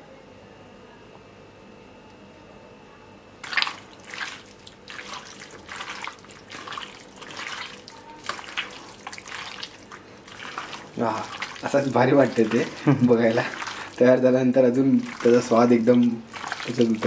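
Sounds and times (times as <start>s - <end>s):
wet squelching of marinated meat: 3.4s - 17.0s.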